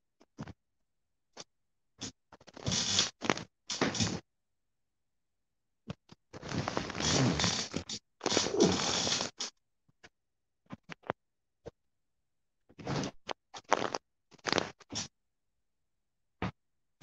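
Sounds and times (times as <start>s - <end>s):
cloth rubbing on phone microphone: 6.4s - 9.4s.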